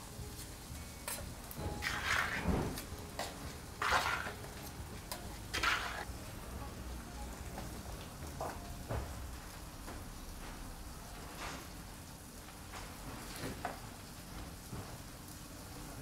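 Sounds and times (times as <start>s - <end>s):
knife scraping a steel pot: 1.8s - 2.5s, 3.8s - 4.5s, 5.5s - 6.1s.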